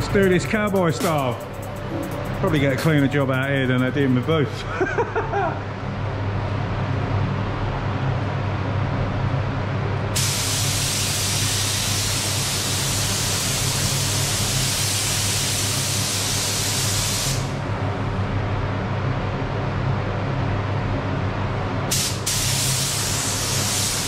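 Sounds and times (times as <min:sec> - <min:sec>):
steady low hum: 0:00.0 - 0:14.8, 0:17.4 - 0:24.0
spray gun hissing: 0:10.2 - 0:17.5, 0:21.9 - 0:24.0.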